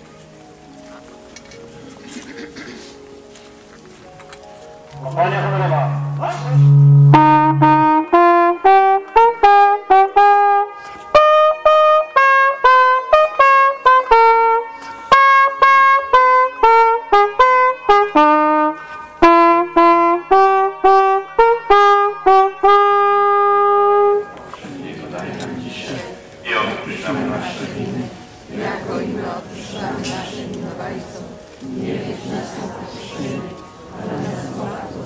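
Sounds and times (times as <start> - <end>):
trumpet playing solemn melody: 4.9 - 24.6.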